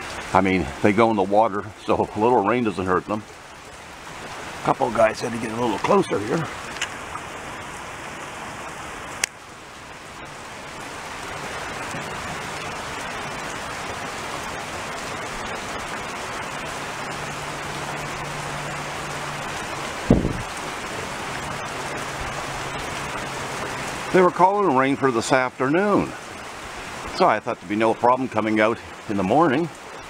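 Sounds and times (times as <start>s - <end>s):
steady rain hiss: 0.0s - 30.0s
short thump: 20.1s - 20.4s.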